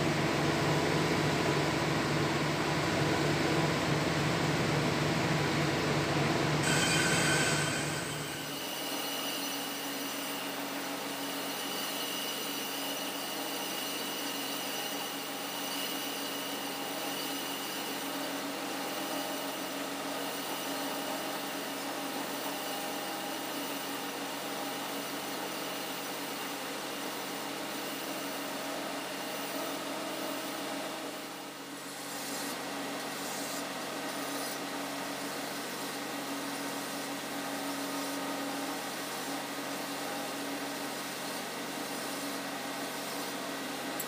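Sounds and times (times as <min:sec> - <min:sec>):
metal lathe running: 0:06.6 - 0:11.7.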